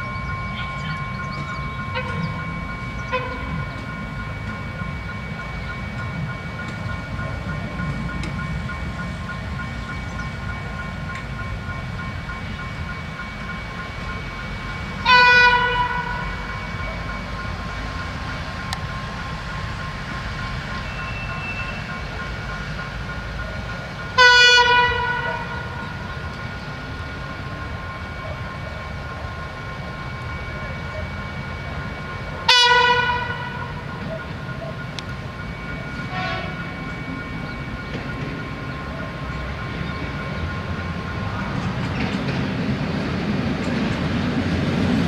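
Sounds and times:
low train rumble: 0:00.0 - 0:45.0
train horn blasts: 0:01.9 - 0:03.8, 0:15.0 - 0:16.5, 0:24.2 - 0:25.8, 0:32.4 - 0:33.8, 0:36.1 - 0:36.8.

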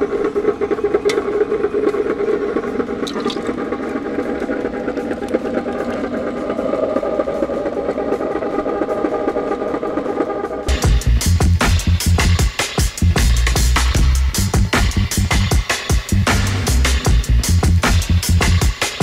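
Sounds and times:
liquid pouring: 0:03.0 - 0:03.6.

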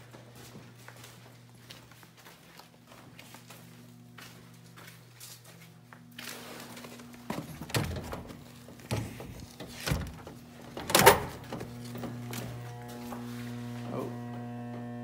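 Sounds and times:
steady electrical hum: 0:00.0 - 0:15.0
heavy door thunks: 0:07.3 - 0:11.8.

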